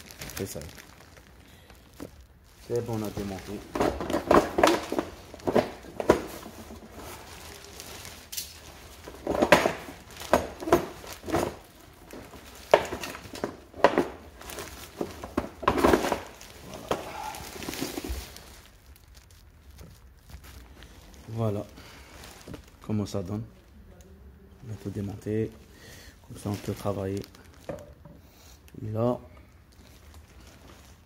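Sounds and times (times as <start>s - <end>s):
cables and bags rattling: 0.0s - 24.0s, 24.6s - 31.0s
plastic knocks and clatter: 3.7s - 7.0s, 9.1s - 17.0s, 27.6s - 28.2s.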